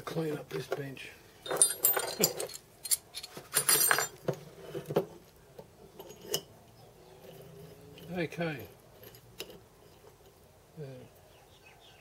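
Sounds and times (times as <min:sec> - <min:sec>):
metal tools clinking on workbench: 0:01.4 - 0:04.2.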